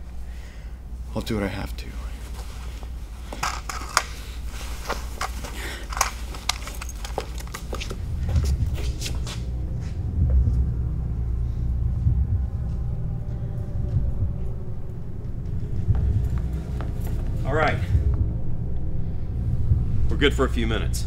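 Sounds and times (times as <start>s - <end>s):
low steady rumble: 0.0s - 21.0s
cloth sack rustling: 2.2s - 8.0s.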